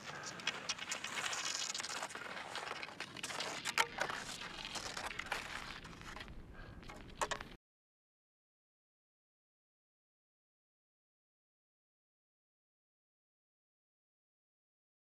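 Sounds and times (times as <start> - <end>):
skis crunching and scraping on snow: 0.0 - 7.6.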